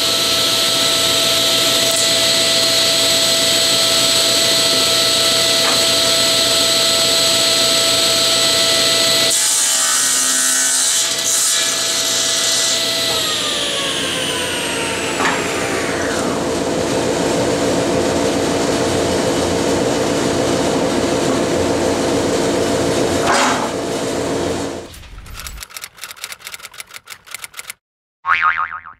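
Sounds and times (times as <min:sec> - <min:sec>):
saw cutting wood: 0:00.0 - 0:16.6
table saw whining: 0:00.0 - 0:18.0
typewriter-like clicks: 0:25.2 - 0:27.8.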